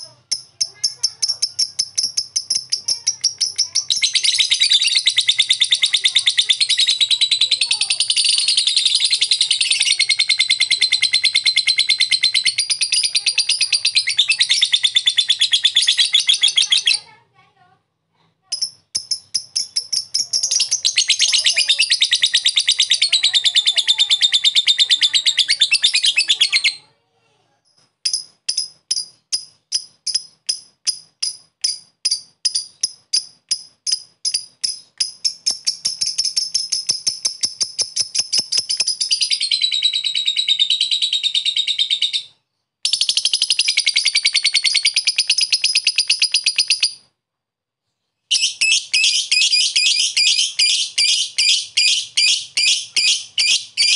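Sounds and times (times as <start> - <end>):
bird chattering trill: 0.0 - 17.2, 18.5 - 26.8, 28.1 - 47.1, 48.3 - 53.9
bird sharp ticks: 0.3 - 3.9, 28.1 - 39.1.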